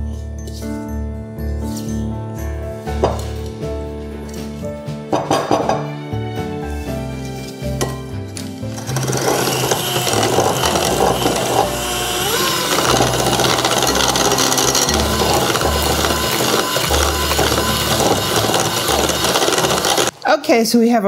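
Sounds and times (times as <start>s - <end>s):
background music: 0.0s - 20.2s
electric hand mixer running: 8.7s - 20.2s.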